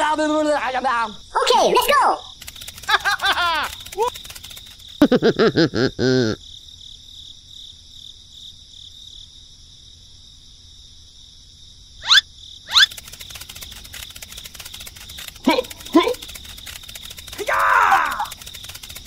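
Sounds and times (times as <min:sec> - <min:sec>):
crickets chirring: 0:00.0 - 0:19.0
squeaky wavering warbles: 0:12.0 - 0:13.0.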